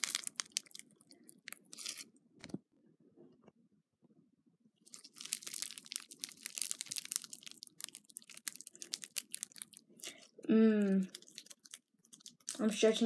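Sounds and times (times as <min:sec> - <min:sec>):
slime crackling and popping: 0:00.0 - 0:02.1, 0:04.9 - 0:10.3, 0:10.9 - 0:12.8.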